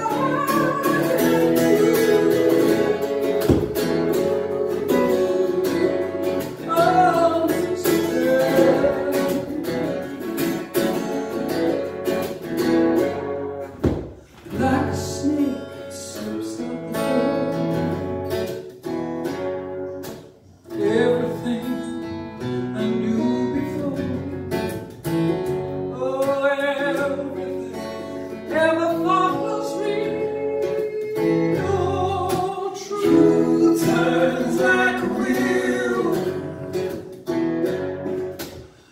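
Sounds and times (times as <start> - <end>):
woman singing through a microphone: 0.0 - 3.7, 4.5 - 9.7
acoustic guitar: 0.0 - 38.9.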